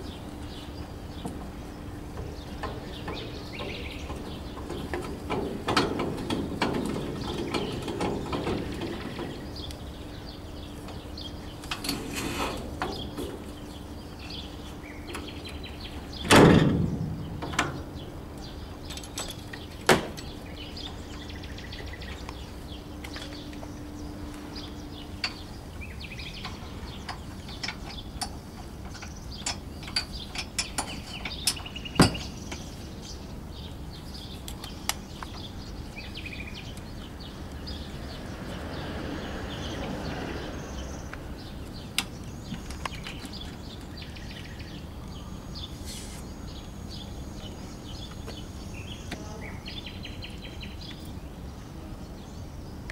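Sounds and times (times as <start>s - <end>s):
metal clicks and knocks of trailer coupling: 2.2s - 9.8s, 11.6s - 13.5s, 15.0s - 21.0s, 26.3s - 32.7s.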